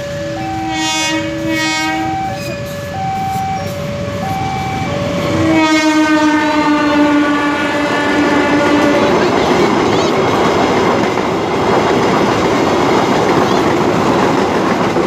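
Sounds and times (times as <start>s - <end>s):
level-crossing alarm two-note tone: 0.0s - 9.4s
locomotive horn: 0.0s - 9.7s.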